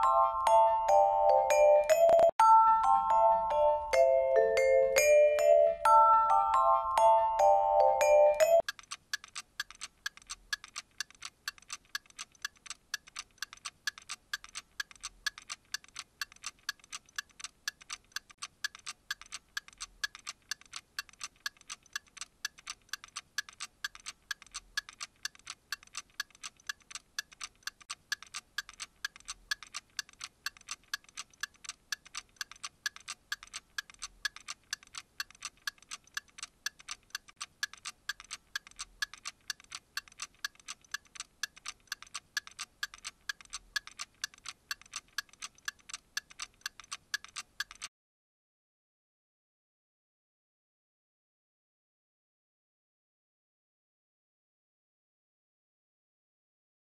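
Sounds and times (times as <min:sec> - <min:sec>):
clock ticking: 0:00.0 - 0:02.4, 0:07.1 - 0:47.9.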